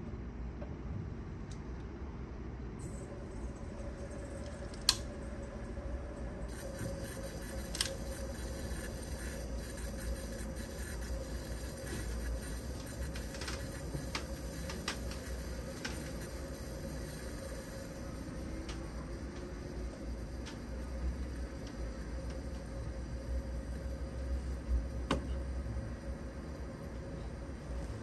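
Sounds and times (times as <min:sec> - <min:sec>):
stove burner low rumble: 0:02.8 - 0:28.0
sharp pops and ticks: 0:06.5 - 0:22.7.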